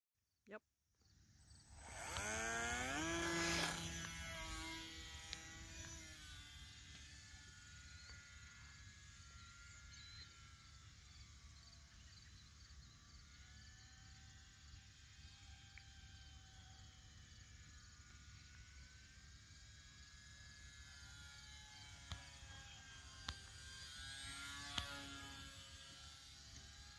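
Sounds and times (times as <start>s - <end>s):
model airplane motor whining: 1.3s - 26.9s.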